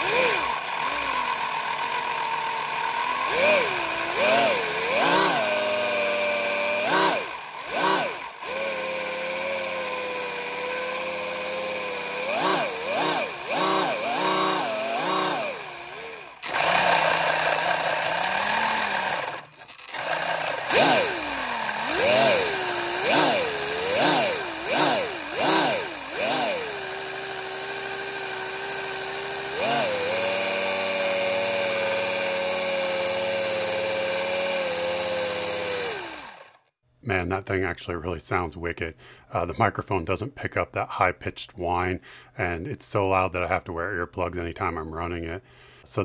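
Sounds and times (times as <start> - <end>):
compressor revving up and down: 0.0 - 36.7.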